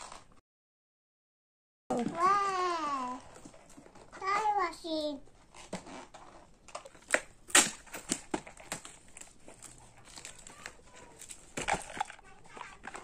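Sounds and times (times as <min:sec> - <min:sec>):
cardboard cracks: 0:06.8 - 0:13.0
cardboard box crinkling and scraping: 0:07.8 - 0:13.0.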